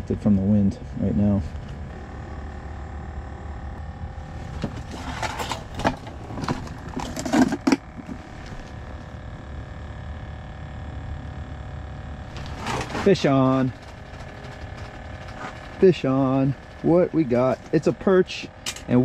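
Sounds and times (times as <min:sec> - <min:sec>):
cooking gear clattering: 0:04.5 - 0:08.3.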